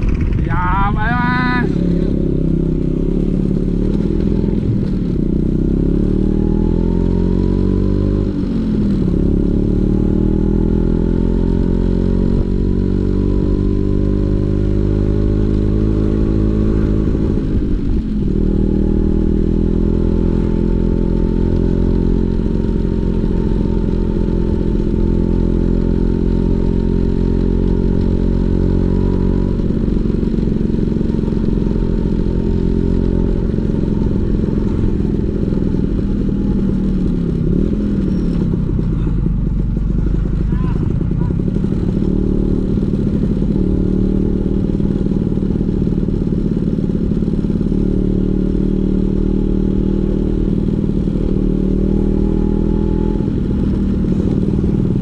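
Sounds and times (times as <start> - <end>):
scooter two-stroke engine: 21.2 - 52.0, 53.2 - 55.0.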